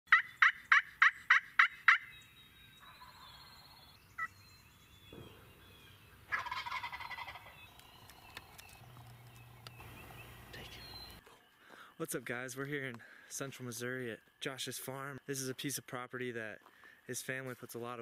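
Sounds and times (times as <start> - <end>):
turkey gobbling: 0.1 - 2.2, 2.8 - 4.3, 6.3 - 7.7
turkey yelps: 0.1 - 2.2, 6.3 - 7.5.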